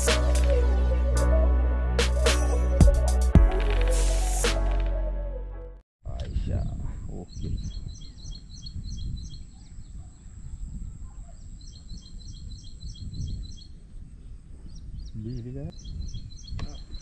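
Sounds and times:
bird chirping: 6.1 - 17.0.

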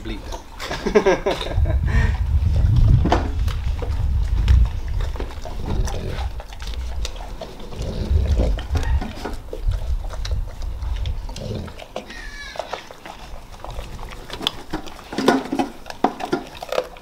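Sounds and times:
dogs chewing and slurping: 0.0 - 17.0
wind rumble on microphone: 0.8 - 11.8.

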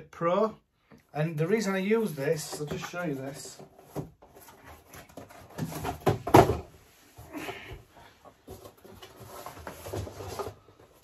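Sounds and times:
cardboard box knocks and thumps: 3.9 - 6.8
cardboard box rustling: 8.4 - 11.0.

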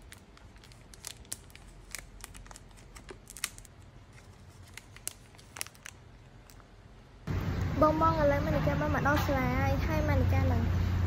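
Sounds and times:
plastic bag crinkling: 0.0 - 6.8.

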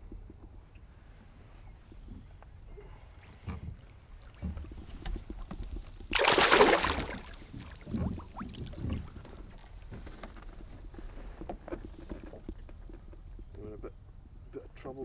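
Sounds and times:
fish thrashing and splashing: 6.1 - 9.2.

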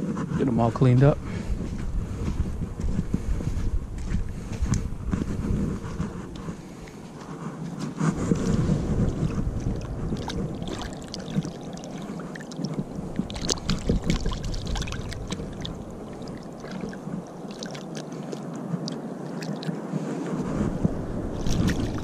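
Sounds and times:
water sloshing and splashing: 8.3 - 22.0.

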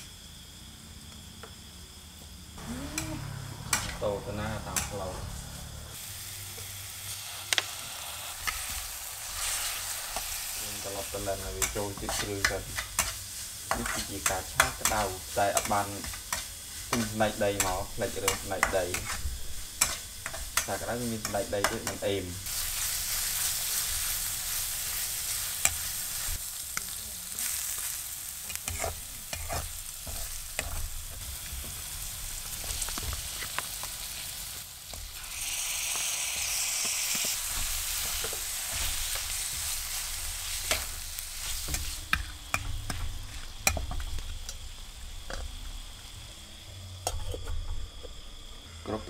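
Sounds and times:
food sizzling in hot oil: 1.6 - 47.6
metal spatula scraping a wok: 28.5 - 30.8.

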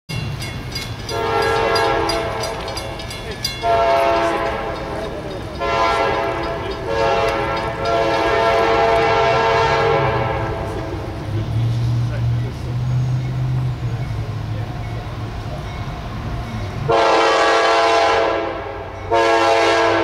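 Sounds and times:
train low rumble: 0.1 - 20.0
locomotive air horn blasts: 1.1 - 2.8, 3.6 - 5.0, 5.6 - 11.1, 16.9 - 20.0.

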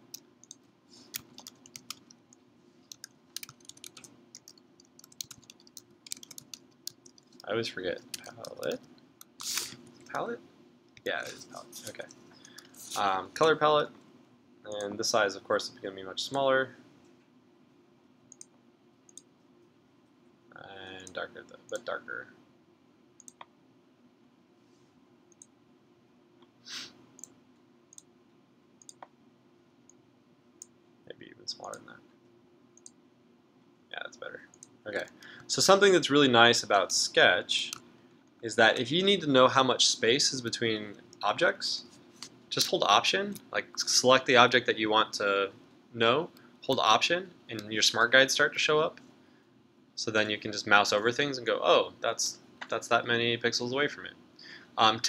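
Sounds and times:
low steady room hum: 0.0 - 55.0
keyboard typing: 0.1 - 2.2, 2.9 - 9.4
computer mouse clicks: 0.1 - 10.2, 23.2 - 23.5, 27.2 - 28.1, 28.8 - 29.1.

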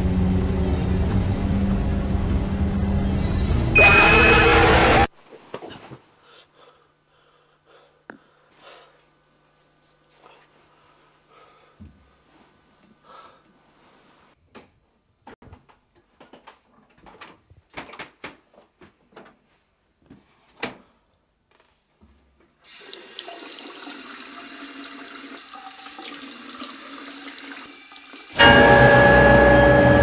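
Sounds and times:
tap water running into sink: 22.7 - 28.4.

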